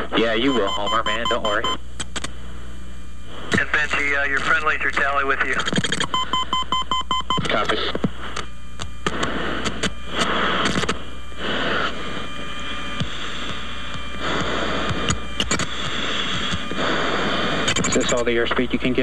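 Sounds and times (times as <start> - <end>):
radio static hiss: 0.0 - 19.0
steady low hum: 0.0 - 19.0
scattered clicks: 7.4 - 10.0, 13.0 - 15.7.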